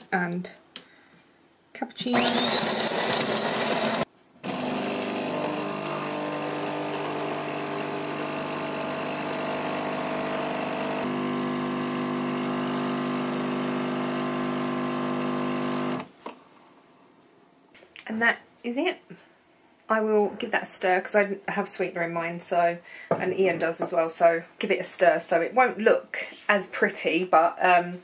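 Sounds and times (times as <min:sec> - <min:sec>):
coffee machine humming: 0:02.1 - 0:16.1
espresso pouring: 0:04.9 - 0:16.0.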